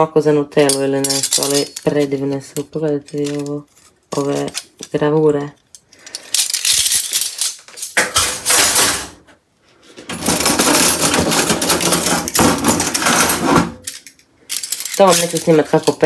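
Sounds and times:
metal cutlery clattering: 0.6s - 4.9s, 6.0s - 9.2s, 10.1s - 16.0s.

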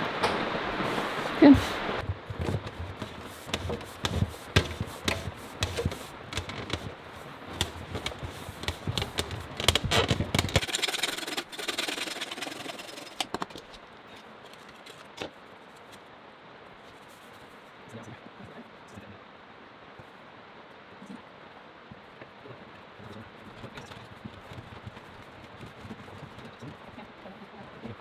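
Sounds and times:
plastic pipe knocking and scraping: 2.0s - 13.7s.

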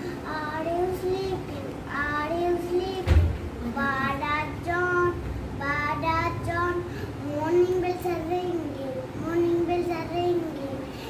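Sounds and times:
boy chanting a lesson: 0.0s - 11.0s
thump: 3.0s - 3.4s.

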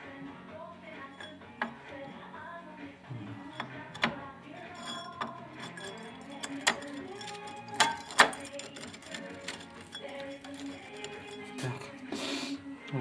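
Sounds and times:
metal clutch parts clinking: 1.1s - 2.1s, 3.4s - 12.0s.

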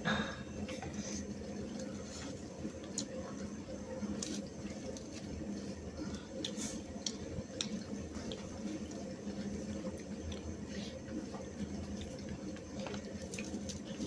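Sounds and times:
steady low hum: 0.0s - 14.0s
chewing and lip smacks: 6.4s - 14.0s.

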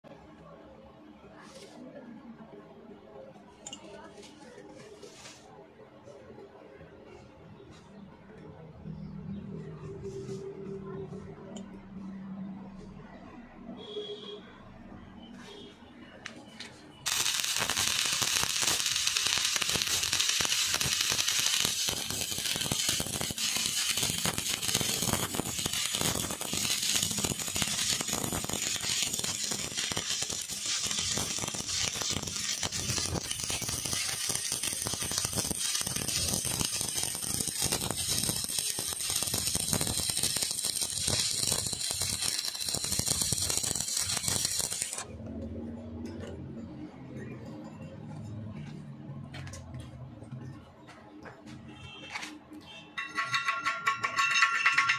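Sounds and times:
arc welding crackle: 17.0s - 45.1s.

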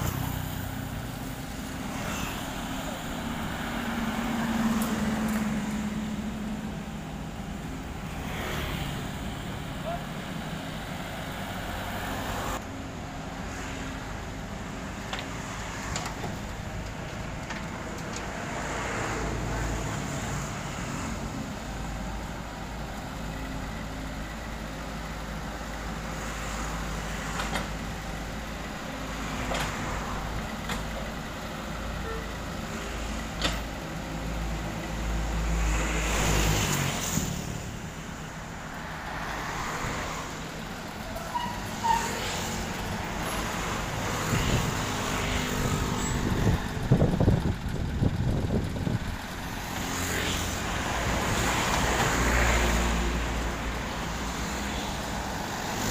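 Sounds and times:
excavator engine and hydraulics: 0.0s - 55.9s.

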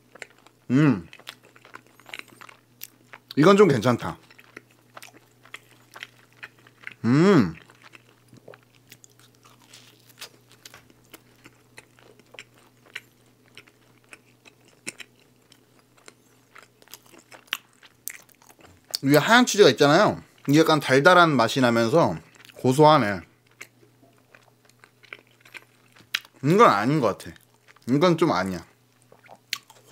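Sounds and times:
chewing with crunches: 0.0s - 3.4s, 4.0s - 19.1s, 22.2s - 22.7s, 23.4s - 26.6s, 27.2s - 29.9s
person humming: 0.7s - 1.1s, 7.0s - 7.6s.

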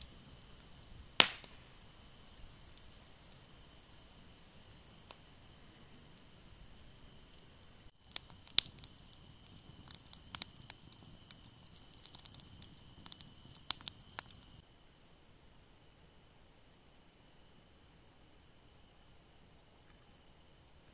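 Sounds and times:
sharp fire pops: 0.0s - 3.2s, 7.9s - 14.6s
wood fire crackling: 0.0s - 14.6s
steady high hiss: 0.0s - 20.9s.

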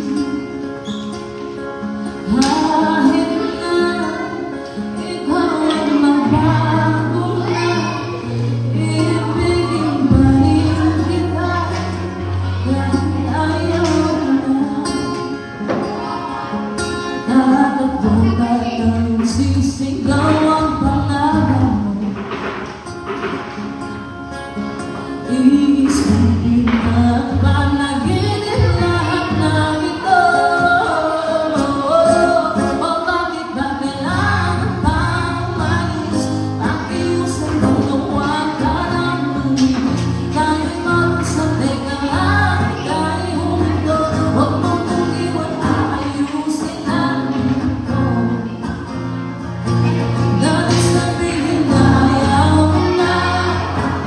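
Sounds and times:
acoustic guitar: 0.0s - 54.0s
woman singing a ballad: 2.2s - 15.5s, 17.2s - 22.3s, 25.2s - 48.9s, 50.3s - 54.0s.

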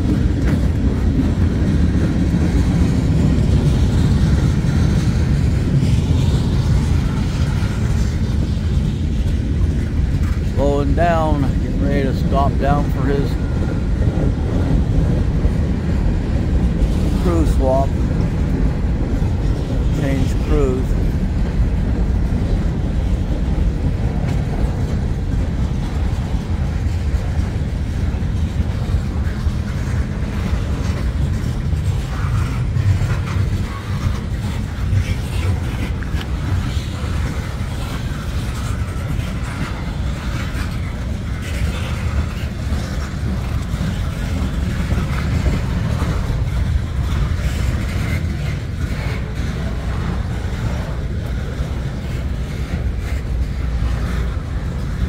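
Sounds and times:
train clanks and squeals: 0.0s - 55.0s
train wheels rumbling on rail: 0.0s - 55.0s.

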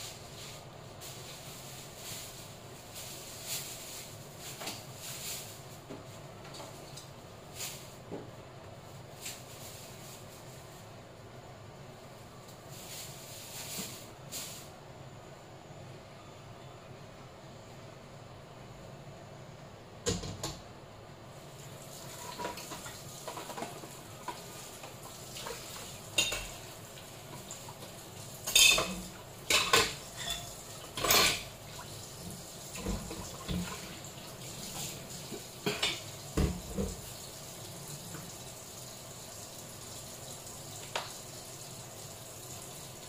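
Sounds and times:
mussels hissing in a frying pan: 21.4s - 32.8s.

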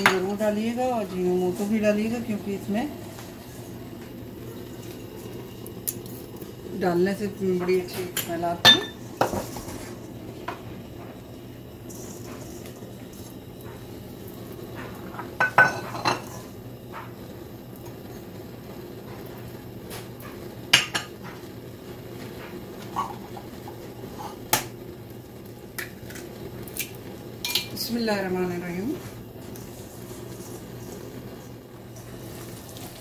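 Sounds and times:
spoon and dishes clinking: 8.1s - 9.4s, 27.4s - 27.8s.

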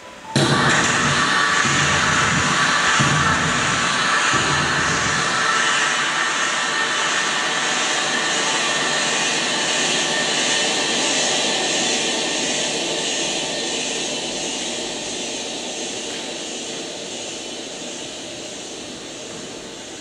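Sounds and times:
loud rushing noise over loudspeakers: 0.0s - 15.0s.

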